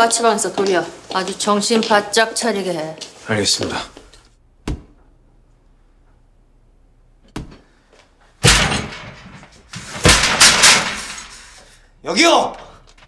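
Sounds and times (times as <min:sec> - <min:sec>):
steel cell door clanging bang: 0:08.4 - 0:11.6.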